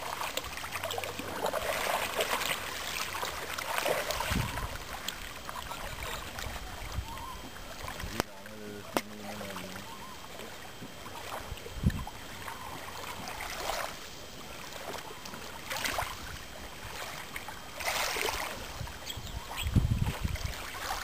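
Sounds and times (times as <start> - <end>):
kayak paddle splashing: 0.0 - 21.0
wind rumble on microphone: 4.1 - 5.0, 11.4 - 12.2, 18.4 - 21.0.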